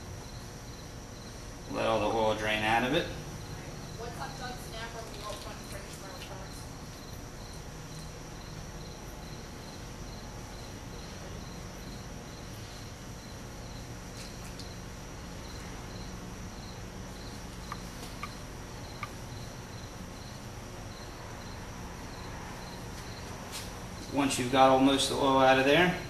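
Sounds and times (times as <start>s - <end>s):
low hum and hiss: 0.0s - 26.0s
small ticks: 14.1s - 14.8s, 17.2s - 19.2s
faint high chirping: 17.2s - 19.6s.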